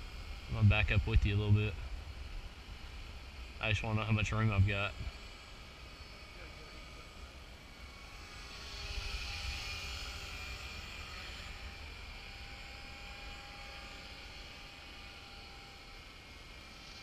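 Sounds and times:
rc helicopter motor whine: 0:00.0 - 0:17.0.

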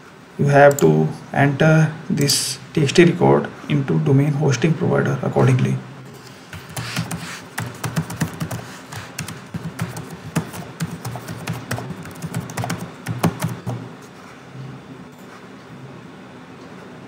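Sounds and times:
computer keyboard typing: 0:06.5 - 0:13.9.

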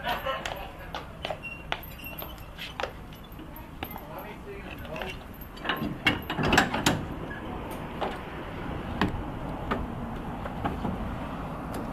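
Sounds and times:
harness chains clinking: 0:00.0 - 0:06.6.

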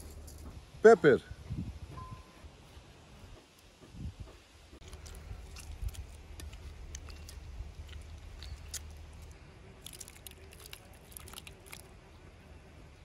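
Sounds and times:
soft squishes: 0:04.8 - 0:12.2.

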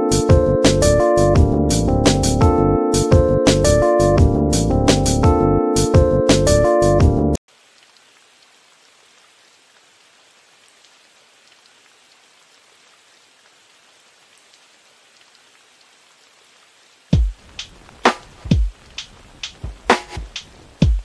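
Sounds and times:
piano music: 0:00.0 - 0:07.4
rain hiss: 0:07.5 - 0:21.0
raindrop ticks: 0:07.5 - 0:21.0.

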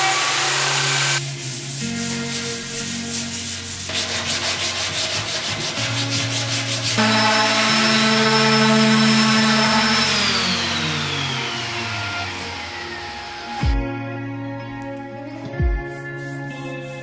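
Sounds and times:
electric orbital sander: 0:00.0 - 0:02.0, 0:04.0 - 0:13.8
sandpaper rubbing on wood: 0:01.2 - 0:10.3, 0:15.9 - 0:17.0.

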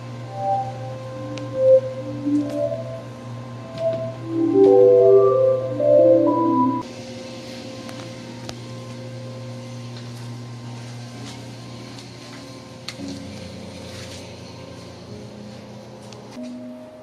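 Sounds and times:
low drone changing pitch: 0:00.0 - 0:06.8.

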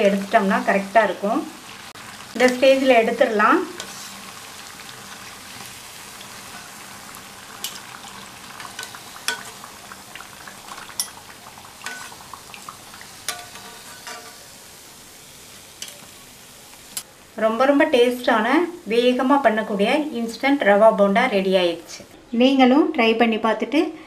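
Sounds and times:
deep-frying sizzle: 0:00.0 - 0:22.1
metal utensils clinking on pan: 0:06.5 - 0:06.8, 0:07.6 - 0:08.0, 0:08.6 - 0:09.7, 0:10.7 - 0:11.2, 0:11.8 - 0:12.2, 0:13.2 - 0:14.5.

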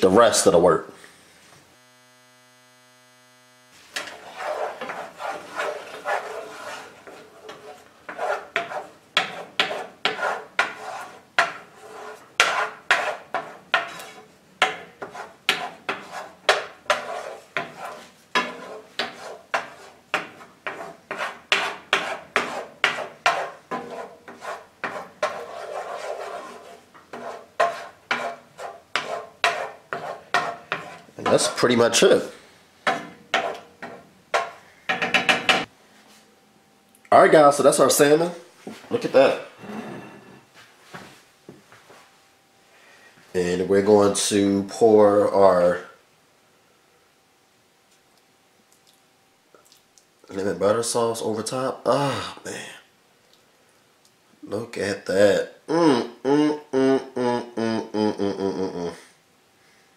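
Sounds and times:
wooden spoon scraping a skillet: 0:03.7 - 0:36.2, 0:38.6 - 0:41.3.

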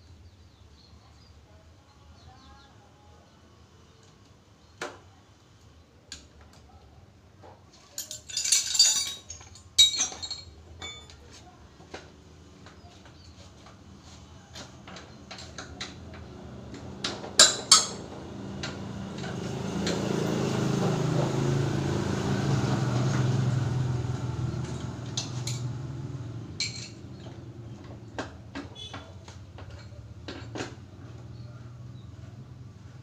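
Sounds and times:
metal tools clinking and clanking: 0:07.8 - 0:11.4, 0:17.4 - 0:18.1, 0:24.6 - 0:25.8, 0:26.6 - 0:27.9, 0:28.6 - 0:30.8.

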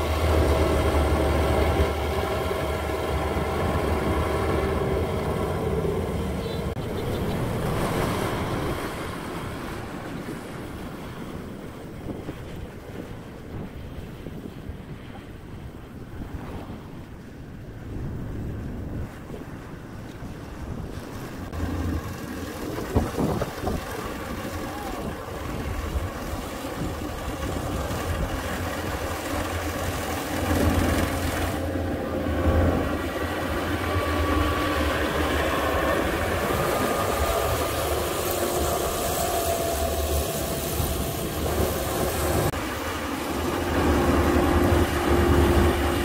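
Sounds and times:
combine harvester engine hum: 0:00.0 - 0:11.4, 0:21.0 - 0:46.0.

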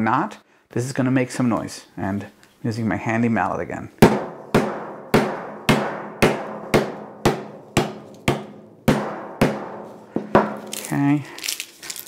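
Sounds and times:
wooden mallet knocking on board: 0:04.0 - 0:10.6.

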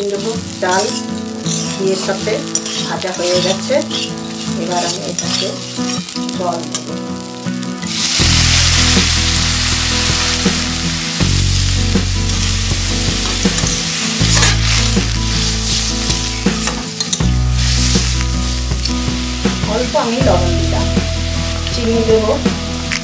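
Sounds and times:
rice sizzling in hot oil: 0:00.0 - 0:23.0
ladle scraping metal pan: 0:02.4 - 0:05.6, 0:13.5 - 0:18.2.

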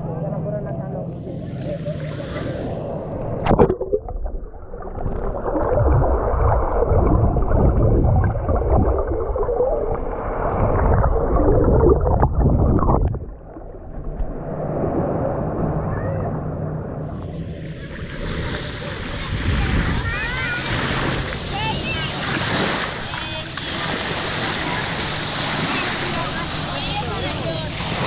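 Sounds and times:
underwater gurgling and rushing: 0:01.0 - 0:28.0
camera splashing into water: 0:03.4 - 0:04.4.

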